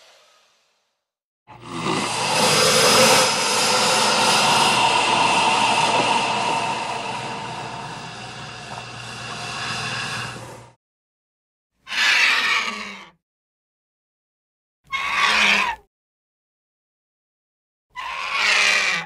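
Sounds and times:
giant crocodile roar: 0:01.5 - 0:10.7.

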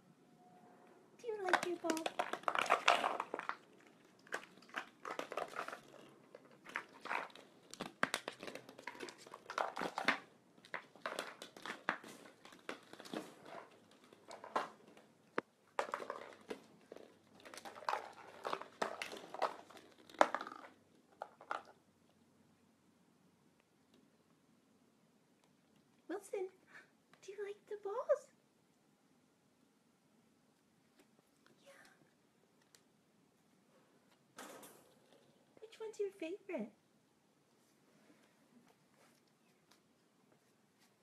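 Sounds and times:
plastic balls clattering on floor: 0:01.2 - 0:21.9, 0:34.1 - 0:35.7.

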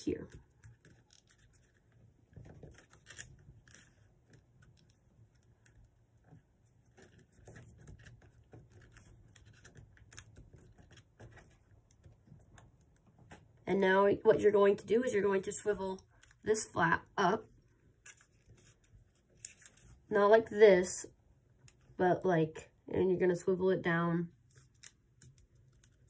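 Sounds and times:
paper rustling and crinkling: 0:00.2 - 0:05.8, 0:06.6 - 0:12.6, 0:17.9 - 0:20.1.

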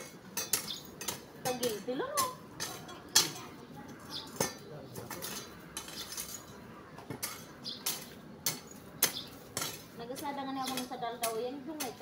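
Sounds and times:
metallic clinks and knocks: 0:04.3 - 0:09.9.

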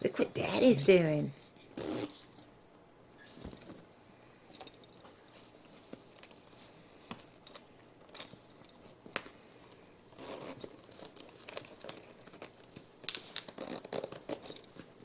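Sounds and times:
cloth rustling and scraping: 0:04.8 - 0:15.0.

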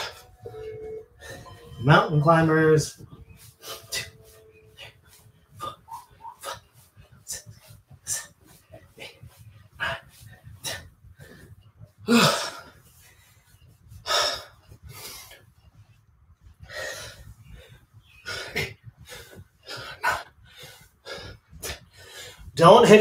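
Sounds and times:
man breathing hard: 0:03.3 - 0:15.6, 0:16.5 - 0:22.6.

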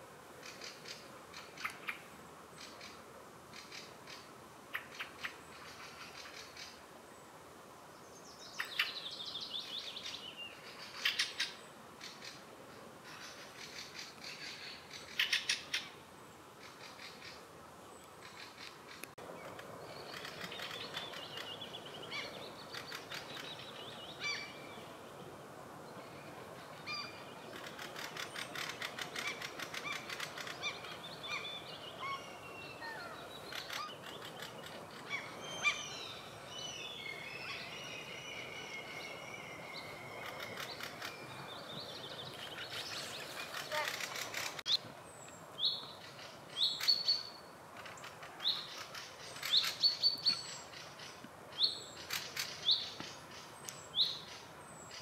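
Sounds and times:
songbirds singing: 0:08.0 - 0:12.4, 0:13.0 - 0:55.0
sharp chattering bird calls: 0:26.9 - 0:31.0, 0:33.5 - 0:35.8, 0:42.5 - 0:44.8.

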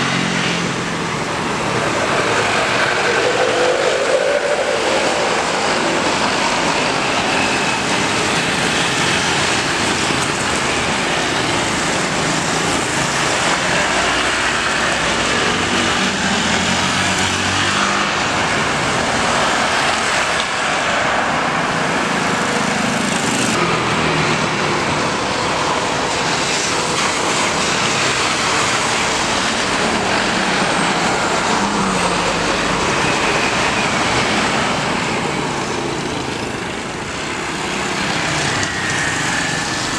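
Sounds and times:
jet engine noise: 0:00.0 - 0:39.9.

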